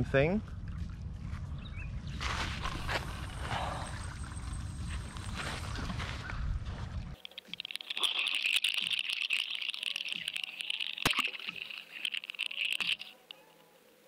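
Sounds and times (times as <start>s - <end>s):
clicking and rattling: 7.2s - 13.4s.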